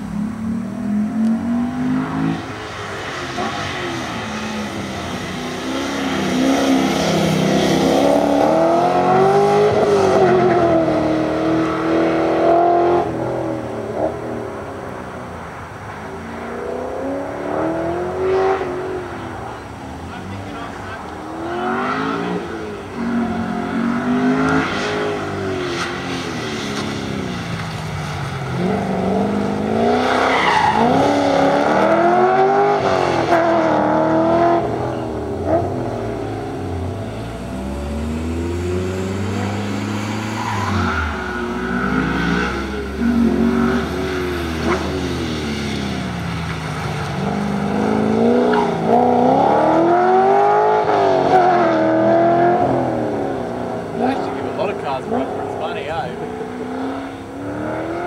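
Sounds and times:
car engine revving: 0.0 - 58.0
tyre squeal: 40.0 - 45.0.

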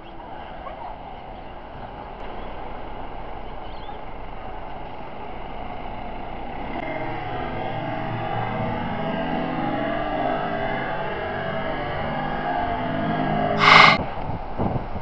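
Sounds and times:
street traffic noise: 0.0 - 7.2.

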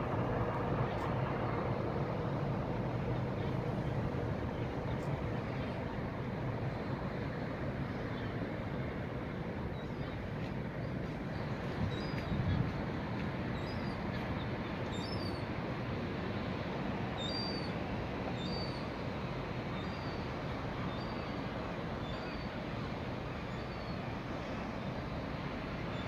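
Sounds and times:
steady low rumble: 0.0 - 14.3.

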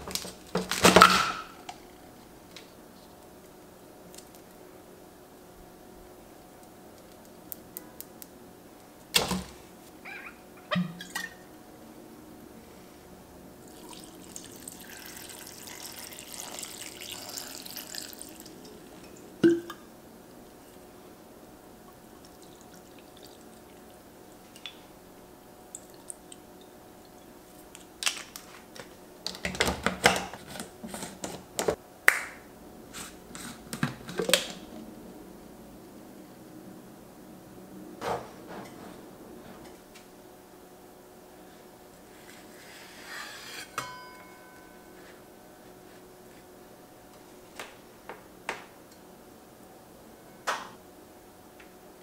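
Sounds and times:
wine pouring into plastic cup: 13.6 - 19.7.

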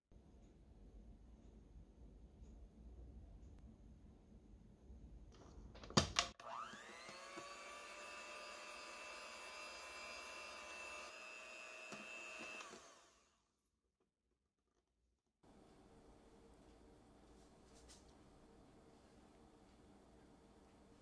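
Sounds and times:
electric hand mixer whirring: 6.4 - 13.4.

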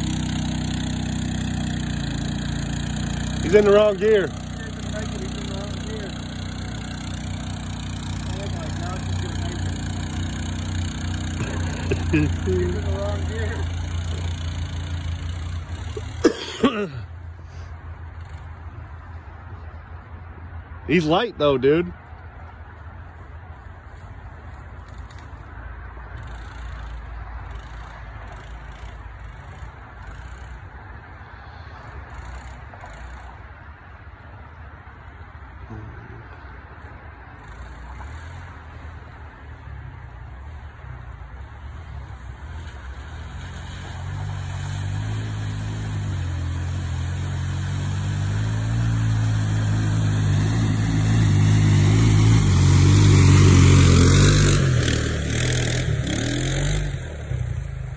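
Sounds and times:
tyres churning mud: 0.0 - 17.0, 42.4 - 57.9
atv engine running unevenly: 0.0 - 19.1, 26.1 - 31.0, 41.7 - 57.9.

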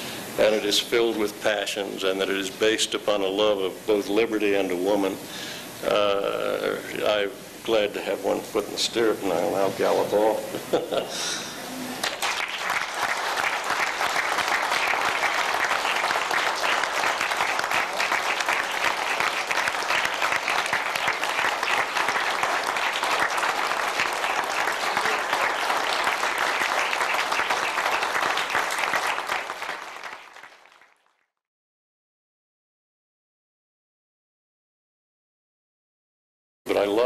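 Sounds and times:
audience applauding: 12.0 - 31.3.

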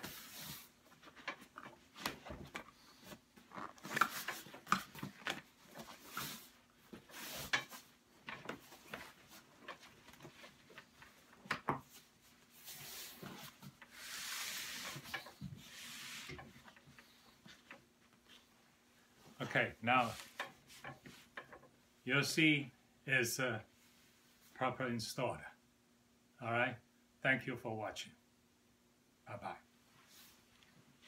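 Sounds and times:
hand rubbing fabric cover: 12.4 - 15.0, 15.6 - 16.3.

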